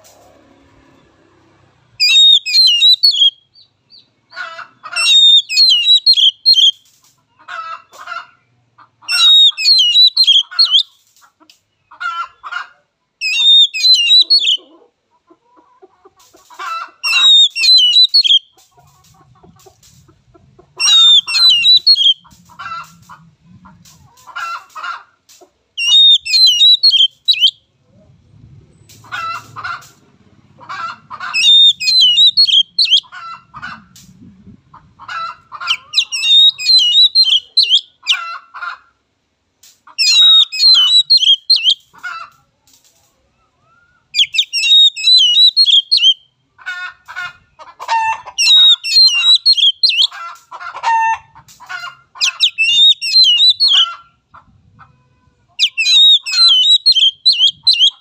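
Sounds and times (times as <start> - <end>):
bird chattering notes: 2.0 - 4.1, 4.9 - 6.8, 9.1 - 10.8, 13.2 - 14.6, 17.0 - 18.4, 20.8 - 22.3, 25.8 - 27.5, 31.0 - 33.1, 35.6 - 38.2, 40.0 - 41.9, 44.2 - 46.2, 48.4 - 50.1, 52.2 - 53.8, 55.6 - 58.0
bird singing whistled phrases: 2.0 - 4.1, 5.0 - 6.8, 9.1 - 10.9, 13.2 - 14.6, 17.1 - 18.4, 20.8 - 22.2, 25.8 - 27.6, 31.4 - 33.0, 36.0 - 37.9, 40.0 - 41.8, 43.9 - 46.2, 48.4 - 50.1, 52.3 - 53.8, 55.6 - 58.0.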